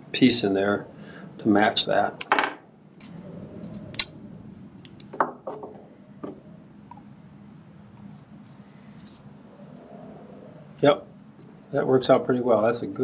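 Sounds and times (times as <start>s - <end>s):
low steady hum: 0.0s - 13.0s
knife set down on bench: 2.3s - 2.6s.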